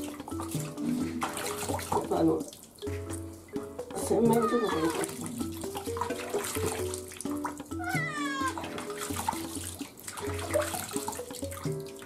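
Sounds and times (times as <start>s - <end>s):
simple background melody: 0.0s - 12.0s
cat meowing: 4.2s - 5.1s, 7.7s - 8.6s.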